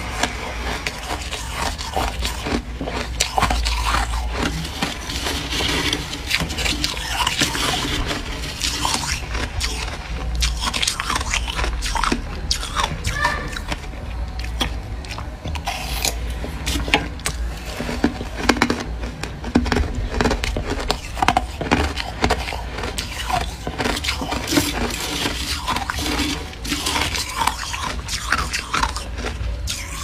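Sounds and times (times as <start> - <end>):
crunching and chewing frost: 0.0 - 30.0
steady low hum: 0.0 - 30.0.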